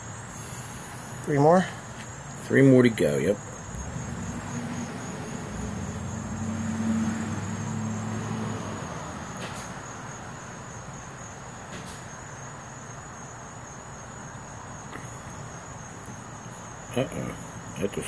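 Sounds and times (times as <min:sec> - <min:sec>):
high-pitched insect trill: 0:00.0 - 0:18.0
low engine hum: 0:03.7 - 0:09.8.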